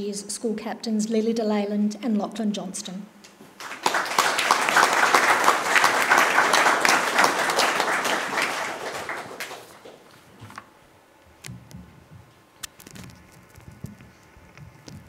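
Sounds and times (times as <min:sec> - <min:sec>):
audience applauding: 0:03.6 - 0:10.1.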